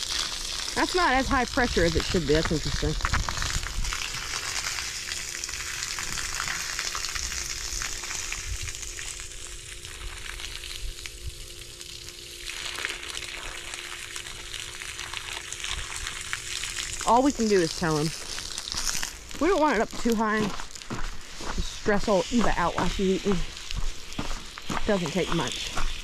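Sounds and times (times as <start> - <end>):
hose water hissing: 0.0 - 26.0
water splashing on gravel: 0.0 - 26.0.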